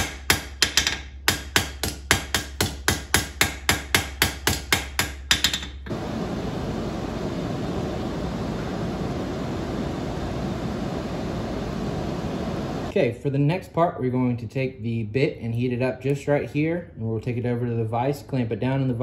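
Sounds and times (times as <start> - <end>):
hammer striking steel on anvil: 0.0 - 5.8
forge fire rushing: 5.9 - 12.9.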